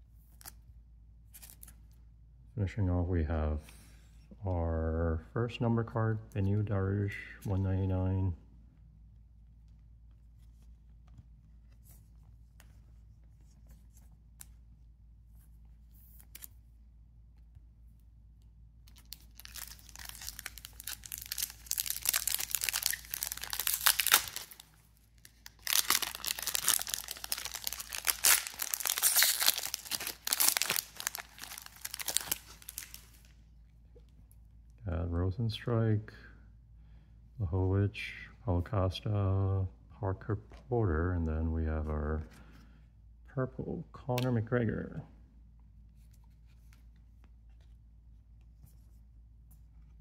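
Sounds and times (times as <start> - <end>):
foil wrapper crinkling and tearing: 19.0 - 33.3.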